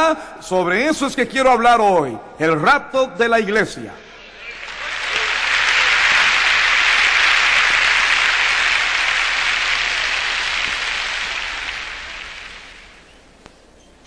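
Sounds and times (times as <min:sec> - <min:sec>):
congregation applauding: 0:04.2 - 0:13.2.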